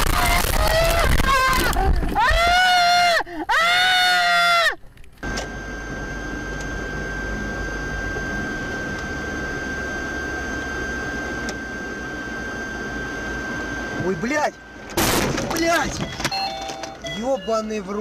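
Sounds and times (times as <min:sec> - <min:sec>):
thin high whine: 0:05.2 - 0:14.9.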